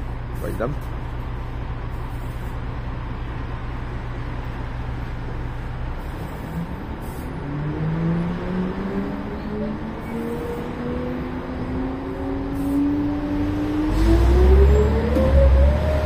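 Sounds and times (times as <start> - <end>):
bus engine drone: 0.0 - 16.0
rising engine whine: 6.2 - 16.0.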